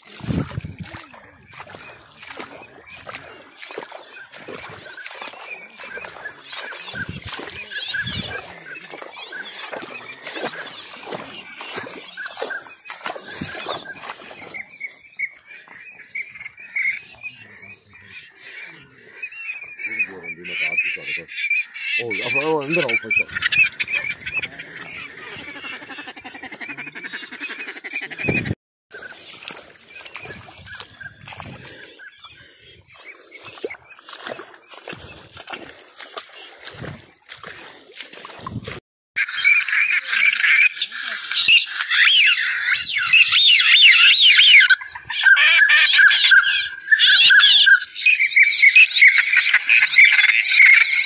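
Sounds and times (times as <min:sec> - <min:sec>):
ducks quacking: 0:00.0 - 0:51.0
electronic bird caller squawking: 0:00.4 - 0:14.1, 0:19.8 - 0:28.6, 0:39.2 - 0:51.0.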